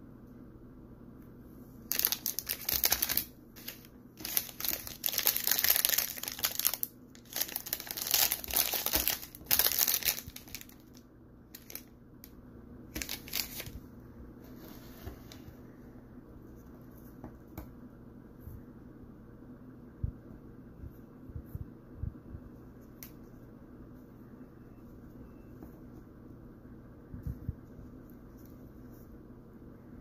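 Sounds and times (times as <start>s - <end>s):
plastic wrapper crackling: 1.9s - 11.9s, 12.9s - 13.8s.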